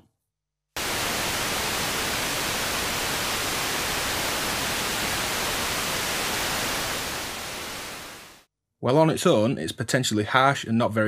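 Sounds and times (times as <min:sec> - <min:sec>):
white noise hiss: 0:00.8 - 0:08.4.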